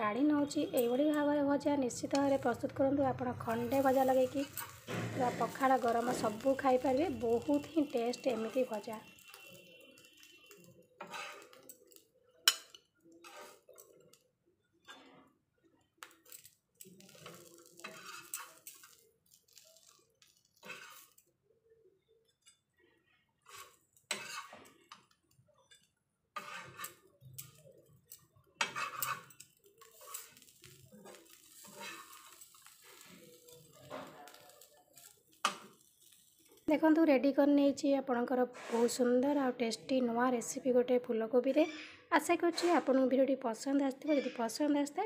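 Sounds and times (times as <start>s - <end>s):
metal spatula scraping griddle: 3.4s - 14.0s, 16.2s - 21.2s, 23.4s - 25.2s, 26.4s - 27.6s, 28.6s - 36.6s, 38.5s - 39.1s.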